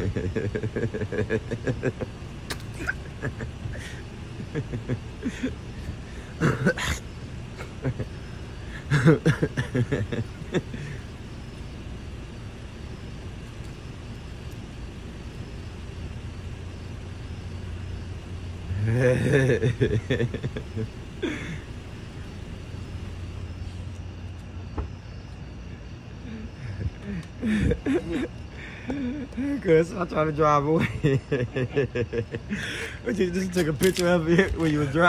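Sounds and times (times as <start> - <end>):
car engine idling: 0.0 - 35.0
muffled man's voice: 33.0 - 35.0.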